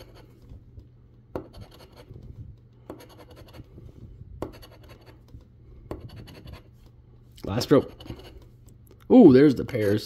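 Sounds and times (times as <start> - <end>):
coin scraping scratch card: 0.0 - 0.3, 1.4 - 2.2, 2.9 - 3.7, 4.4 - 5.3, 6.0 - 6.7.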